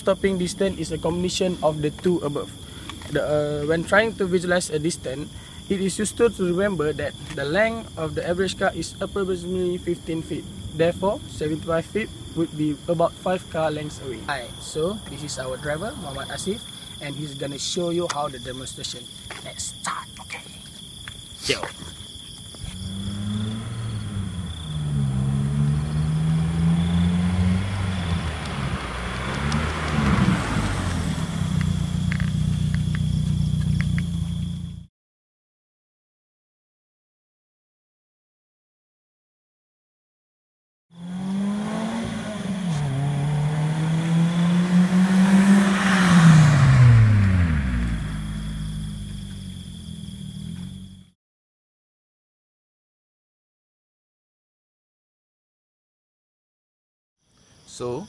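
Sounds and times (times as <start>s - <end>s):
car engine accelerating: 22.7s - 34.9s, 41.0s - 51.1s.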